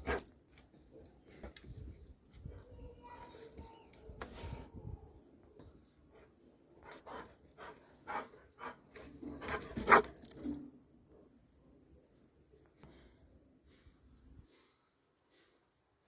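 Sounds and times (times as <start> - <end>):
metal chain collar jangling: 0.0 - 1.2, 7.0 - 10.7.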